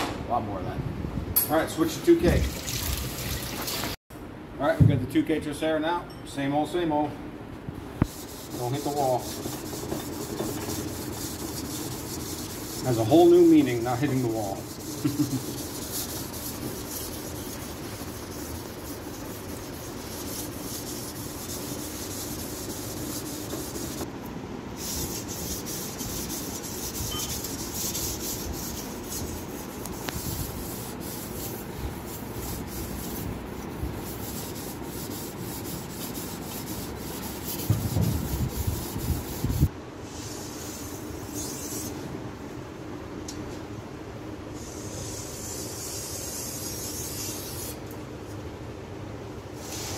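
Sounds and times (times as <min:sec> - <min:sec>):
knife blade scraping on whetstone: 0:27.0 - 0:28.0.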